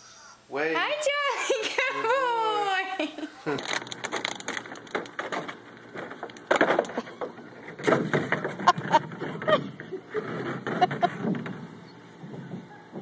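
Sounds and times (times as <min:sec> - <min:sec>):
plastic pool knocking and scraping: 0:04.8 - 0:11.8.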